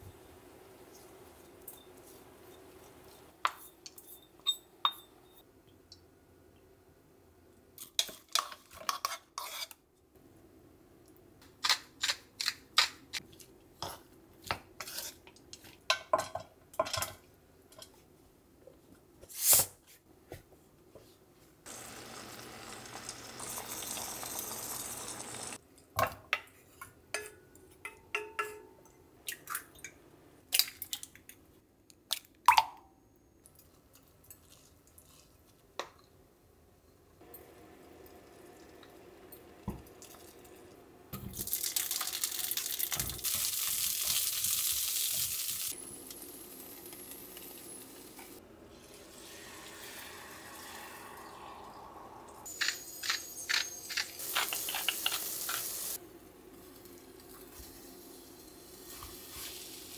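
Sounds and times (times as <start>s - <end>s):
utensils clinking against dishes: 52.5s - 55.8s.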